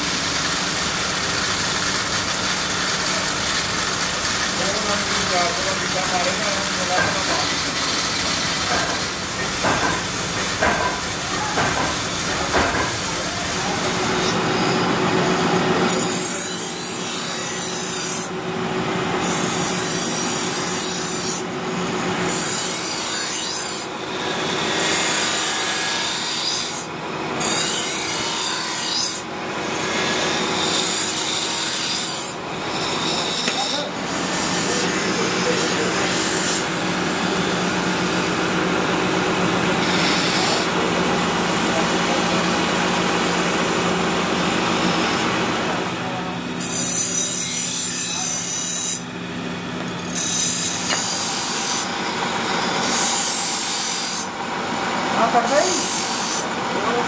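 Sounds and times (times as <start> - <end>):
belt grinder humming: 0.0 - 15.2, 22.2 - 45.2, 46.6 - 54.4.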